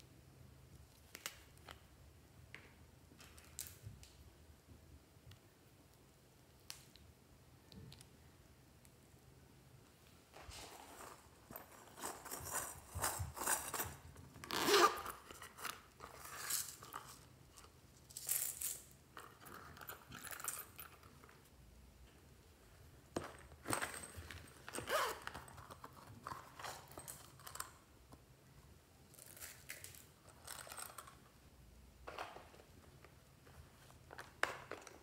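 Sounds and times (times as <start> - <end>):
plastic cases rustling and scraping: 10.3 - 17.3.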